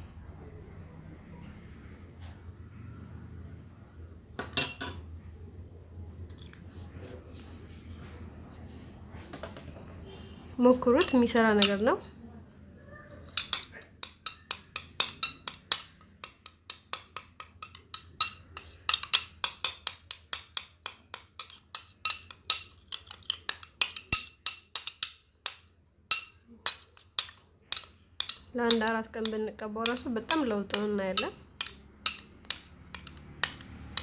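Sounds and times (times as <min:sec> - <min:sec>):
spoon clicking against dish: 0:13.2 - 0:34.0.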